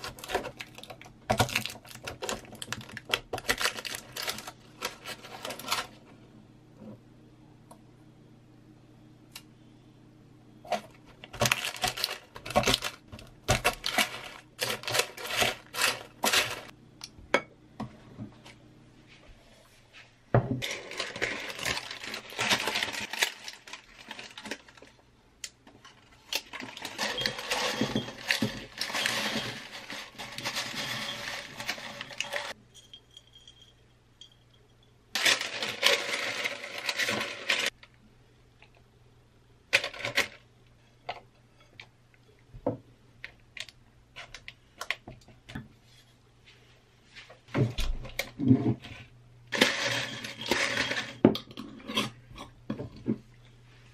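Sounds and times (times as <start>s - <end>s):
granola rustling in paper: 20.6s - 25.0s
glass jar clinks and knocks: 32.7s - 35.0s.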